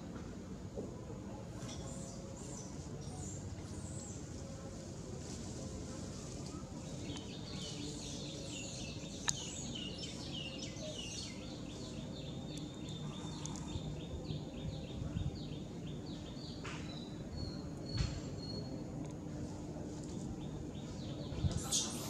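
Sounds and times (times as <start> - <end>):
birds chirping: 6.2 - 18.8.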